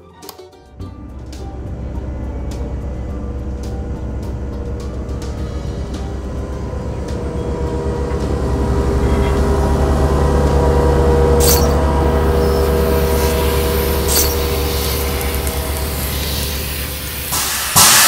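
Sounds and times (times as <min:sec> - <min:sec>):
air compressor hum: 0:00.8 - 0:18.0
air hissing bursts: 0:12.3 - 0:18.0.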